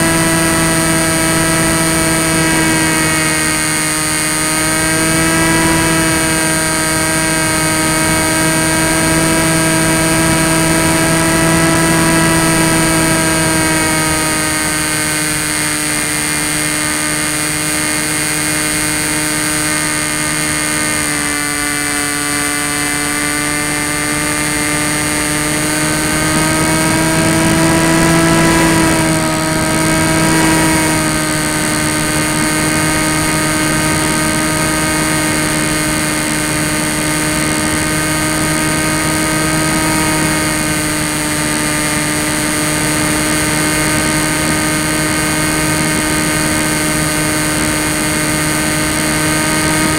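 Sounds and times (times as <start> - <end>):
electric motor propeller whine: 0.0 - 49.9
air rushing: 24.1 - 33.3.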